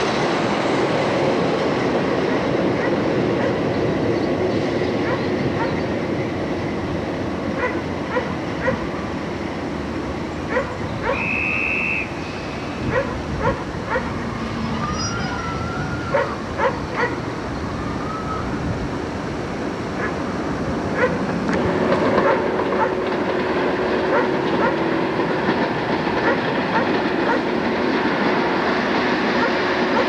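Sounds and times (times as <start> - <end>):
dog barking: 2.8 - 3.6, 5.0 - 5.8, 7.6 - 8.8, 10.5 - 11.2, 12.9 - 14.1, 16.1 - 17.2, 20.0 - 20.2, 21.0 - 21.2, 24.1 - 24.8, 26.2 - 27.4.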